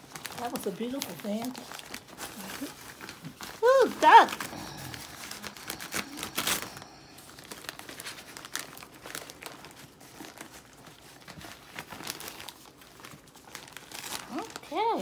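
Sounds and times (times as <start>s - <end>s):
paper crinkling and rustling: 0.0s - 15.0s.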